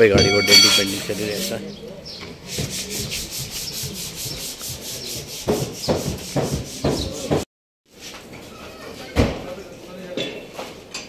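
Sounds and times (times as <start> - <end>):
sanding a car panel: 2.4 - 7.4.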